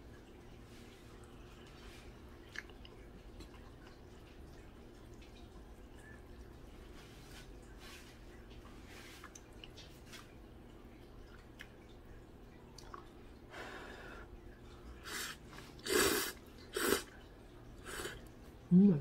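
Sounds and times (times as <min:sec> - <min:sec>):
person slurping noodles: 0:15.0 - 0:17.1, 0:17.8 - 0:18.2.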